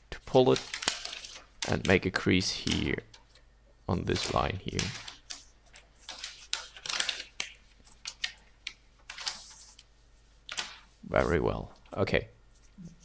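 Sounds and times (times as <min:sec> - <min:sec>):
paper rustling and crackling: 0:00.2 - 0:03.4, 0:04.0 - 0:11.9
paper snapping: 0:00.5 - 0:02.0, 0:04.1 - 0:09.5, 0:10.5 - 0:10.8.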